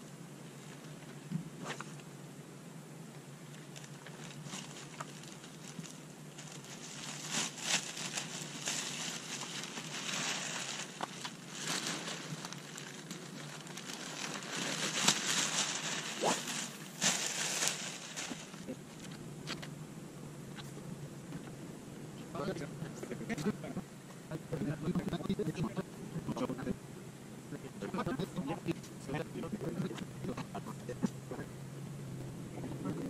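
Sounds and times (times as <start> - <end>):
plastic bag rustling: 3.5 - 19.2.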